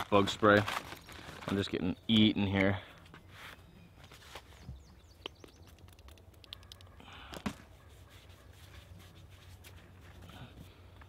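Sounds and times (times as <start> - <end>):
hand rubbing face: 7.7 - 10.3.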